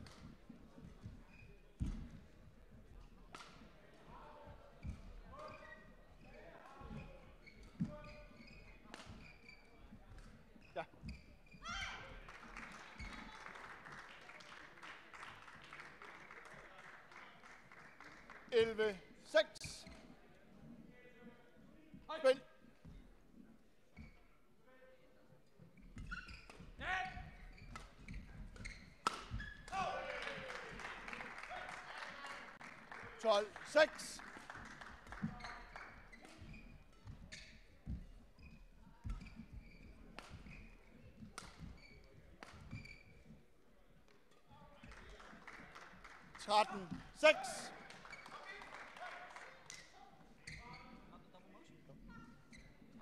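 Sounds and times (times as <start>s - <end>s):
shoes squeaking on court floor: 0.0s - 14.0s, 17.5s - 24.6s, 25.2s - 53.0s
distant clapping: 11.9s - 19.0s, 29.1s - 36.3s, 44.9s - 49.9s
racket striking shuttlecock: 28.5s - 29.8s.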